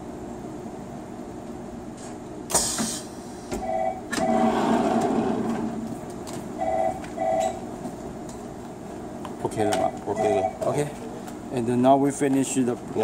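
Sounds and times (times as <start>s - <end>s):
machine hiss: 2.5s - 3.5s
mechanical rumble: 4.2s - 6.6s
short beeps: 6.6s - 7.6s, 10.1s - 10.6s.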